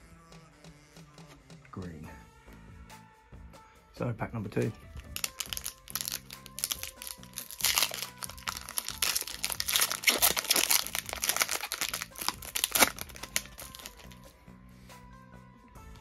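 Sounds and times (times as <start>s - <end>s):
foil pack tearing open: 5.0s - 14.2s
foil wrapper crinkling: 5.0s - 14.2s.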